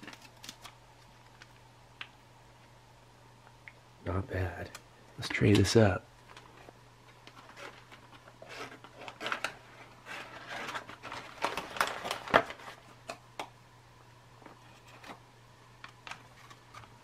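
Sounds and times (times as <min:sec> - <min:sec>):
foil pouch crinkling: 0:07.3 - 0:12.9.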